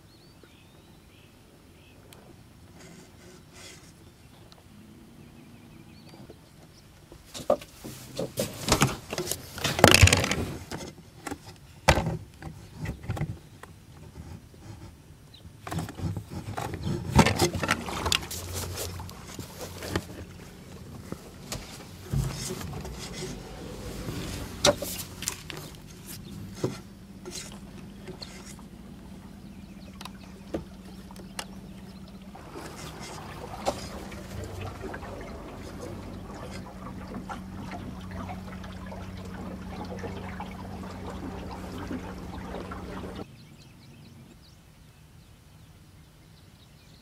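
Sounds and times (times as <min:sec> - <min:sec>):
faint low hum: 0:15.9 - 0:45.4.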